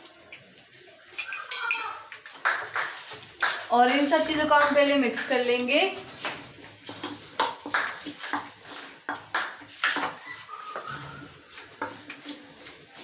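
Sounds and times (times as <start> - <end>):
spoon scraping metal bowl: 5.1 - 13.0.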